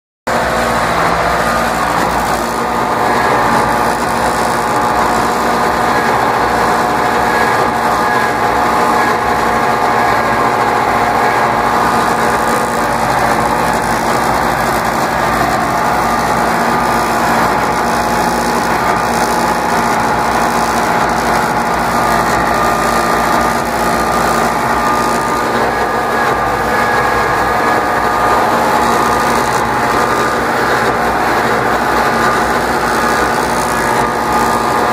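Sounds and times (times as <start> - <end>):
tractor diesel engine under load: 0.3 - 34.9.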